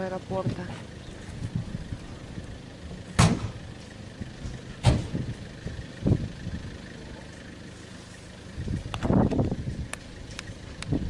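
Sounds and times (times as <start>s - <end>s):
low steady rumble: 0.0s - 11.0s
sharp bangs: 3.1s - 3.7s
dull thud: 3.2s - 3.6s, 4.8s - 5.2s.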